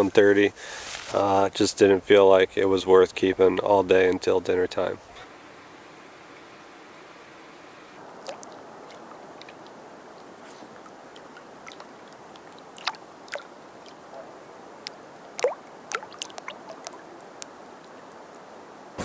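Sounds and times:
small waves lapping: 7.7s - 19.0s.

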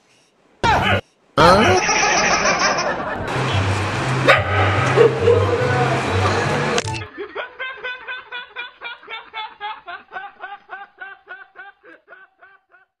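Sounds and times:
man laughing: 0.6s - 3.3s, 5.0s - 6.0s, 7.1s - 13.0s.

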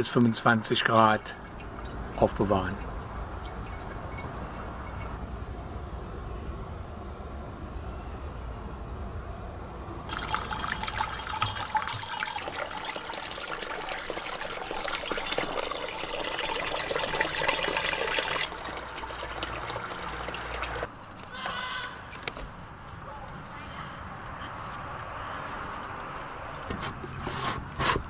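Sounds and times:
juice pouring and splashing: 10.1s - 21.0s.

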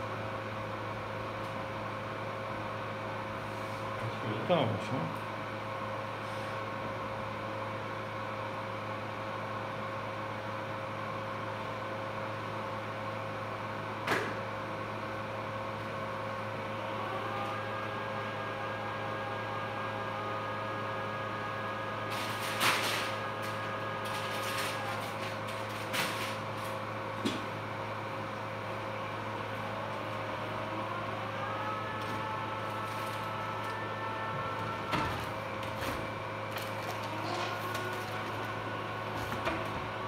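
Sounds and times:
medical equipment humming: 10.8s - 40.0s.

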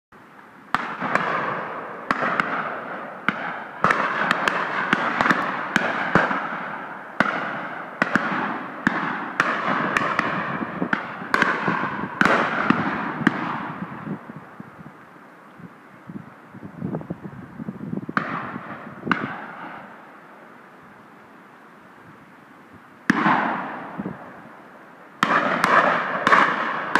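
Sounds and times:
shotguns firing with echo: 0.7s - 14.1s, 18.2s - 19.9s, 23.1s - 24.4s, 25.2s - 26.9s.

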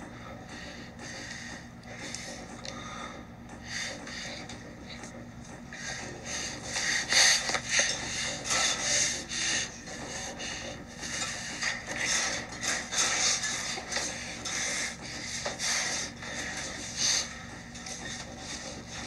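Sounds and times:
breathing: 0.2s - 4.4s.

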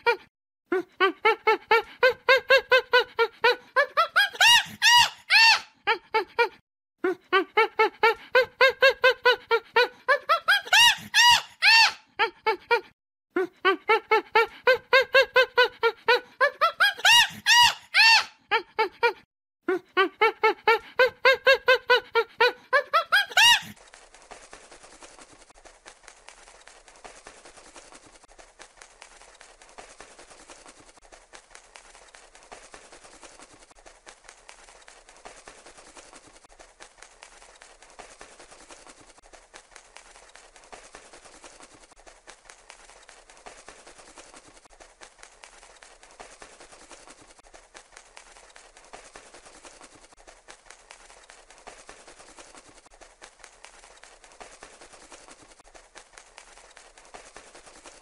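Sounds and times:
primate squealing calls: 1.0s - 6.5s, 7.6s - 12.8s, 13.9s - 18.9s, 20.2s - 23.8s.

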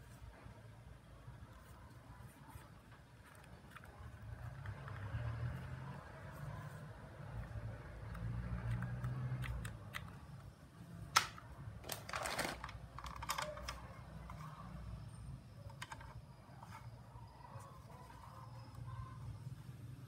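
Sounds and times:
hard plastic parts clicking: 11.1s - 14.5s, 15.6s - 16.3s
plastic bag rustling: 11.8s - 12.8s.

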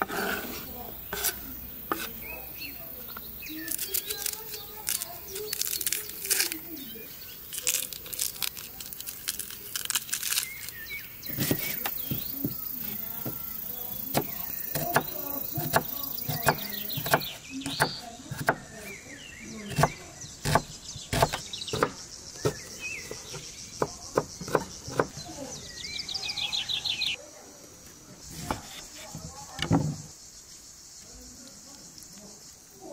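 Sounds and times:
birds chirping: 0.0s - 32.9s
onion skin crackling: 2.9s - 18.9s
knife chopping on wooden board: 11.3s - 12.6s, 13.2s - 18.7s, 19.7s - 25.2s.

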